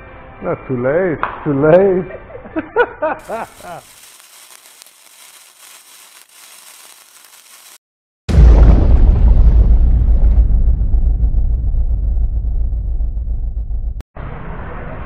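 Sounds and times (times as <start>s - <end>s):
fizzing crackle: 3.2s - 7.8s
loud deep boom: 8.3s - 14.5s.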